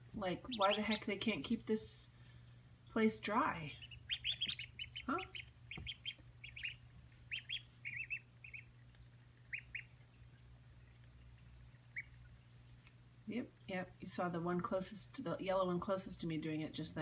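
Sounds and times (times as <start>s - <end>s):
ducklings peeping: 0.2s - 2.1s, 3.2s - 13.0s.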